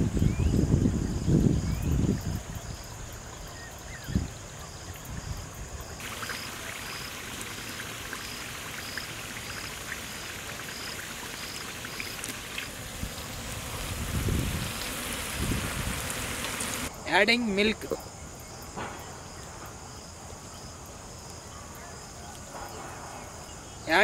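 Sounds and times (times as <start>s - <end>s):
wind rumble on microphone: 0.0s - 6.0s, 12.7s - 16.9s
insect chirping: 0.0s - 24.0s
pot boiling hiss: 5.9s - 16.9s.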